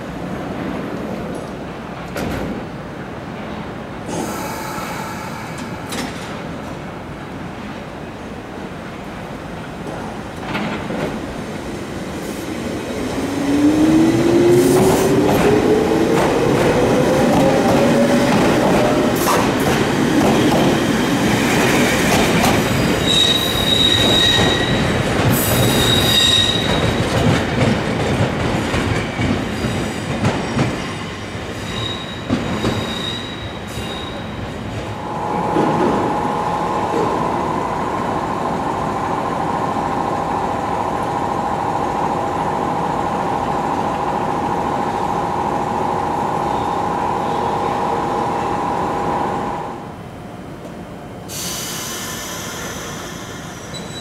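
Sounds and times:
train wheels rumbling and clattering: 0.0s - 49.6s
standing train humming: 34.6s - 51.3s.

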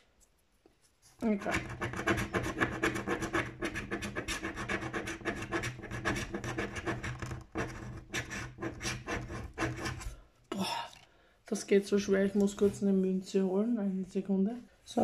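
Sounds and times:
finger scratching lottery ticket: 1.4s - 10.0s.

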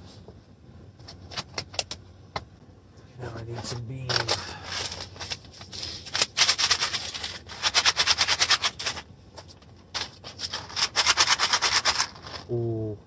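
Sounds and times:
coffee beans clattering: 4.0s - 12.5s.

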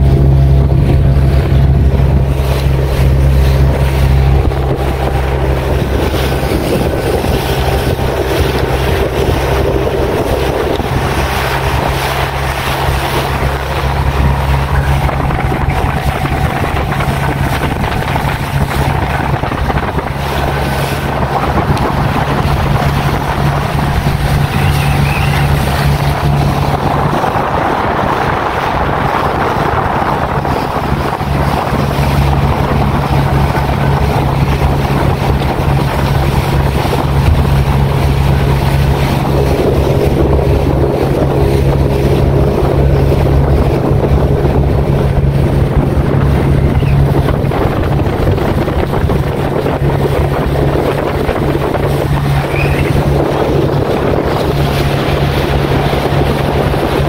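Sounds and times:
boat motor running: 0.0s - 57.0s
water rushing past hull: 0.0s - 57.0s
wind buffeting microphone: 0.0s - 57.0s.

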